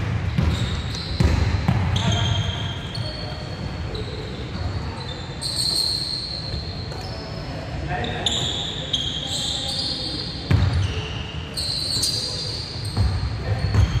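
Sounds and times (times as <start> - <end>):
basketball bouncing on wooden floor: 0.0 - 2.0.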